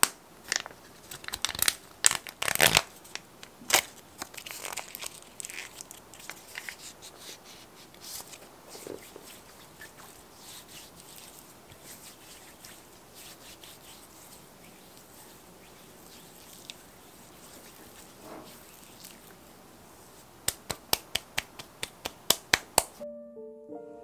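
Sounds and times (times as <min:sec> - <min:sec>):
hands rubbing skin: 0:04.3 - 0:23.0.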